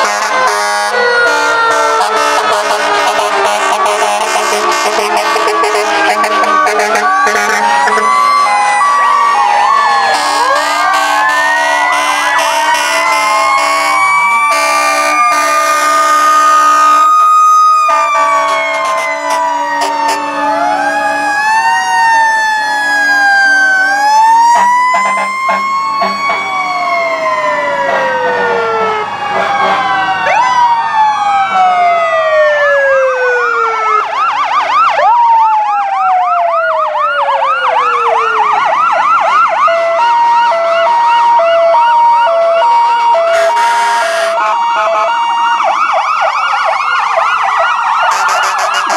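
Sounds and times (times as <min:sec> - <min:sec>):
emergency vehicle sirens wailing: 0:00.0 - 0:48.9
fast siren yelp: 0:00.0 - 0:48.9
steady siren tones: 0:00.0 - 0:48.9.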